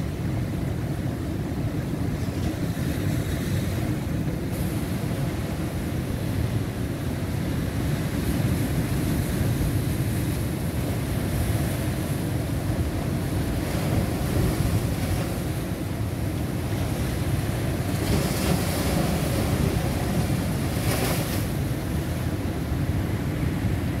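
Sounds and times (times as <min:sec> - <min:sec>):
surf breaking on rocks: 0:13.2 - 0:22.4.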